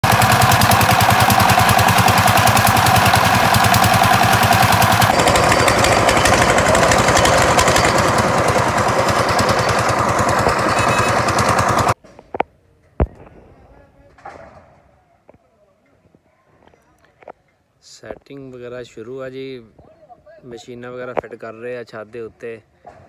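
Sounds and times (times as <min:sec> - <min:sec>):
hoist engine chugging: 0:00.0 - 0:12.0.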